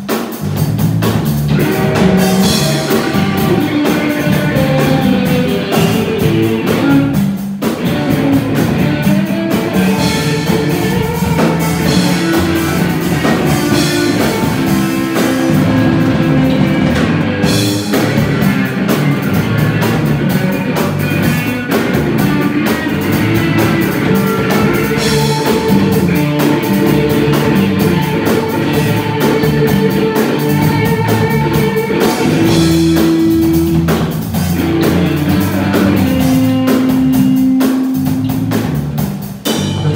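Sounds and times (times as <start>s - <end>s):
amplified electric guitar: 0.0s - 39.9s
drum kit: 0.0s - 39.9s.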